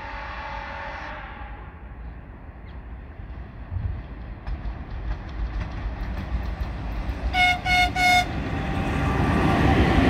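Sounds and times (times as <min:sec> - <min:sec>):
locomotive horn blasts: 0:00.0 - 0:01.6, 0:07.3 - 0:08.4
train rumbling: 0:00.0 - 0:10.0.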